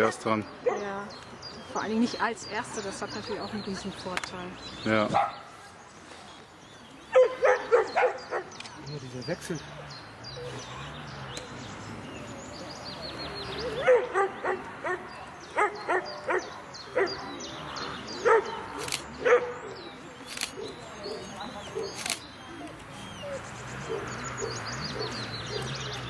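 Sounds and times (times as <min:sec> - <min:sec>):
dog barking: 0:00.0 - 0:00.9, 0:05.2 - 0:05.4, 0:07.1 - 0:08.5, 0:13.8 - 0:17.2, 0:18.2 - 0:19.6.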